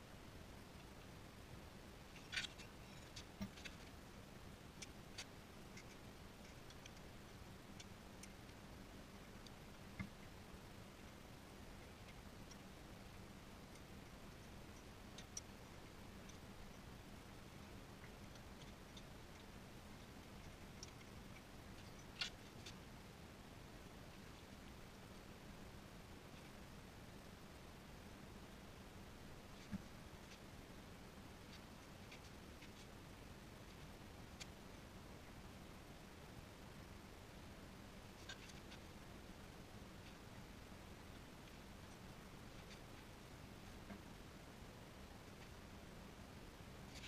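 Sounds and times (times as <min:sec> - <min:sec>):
faint clicks and taps: 0:02.1 - 0:04.0, 0:04.8 - 0:22.8, 0:38.1 - 0:44.2.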